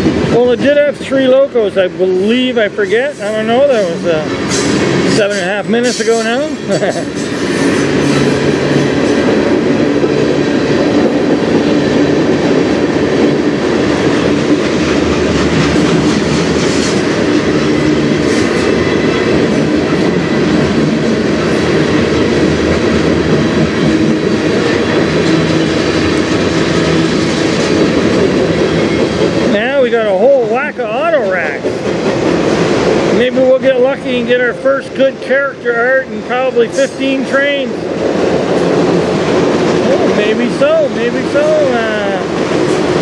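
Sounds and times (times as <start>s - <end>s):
train wheels rumbling on rails: 0.0s - 43.0s.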